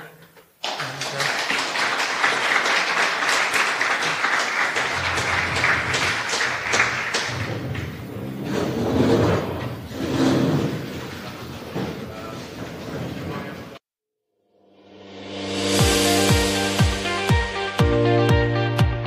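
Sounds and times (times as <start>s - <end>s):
audience applauding: 0.6s - 8.0s.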